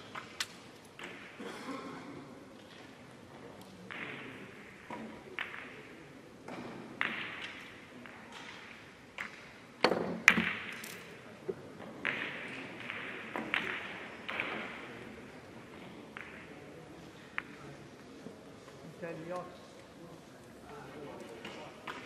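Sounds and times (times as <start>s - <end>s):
billiard balls knocking together: 6.5s - 14.8s.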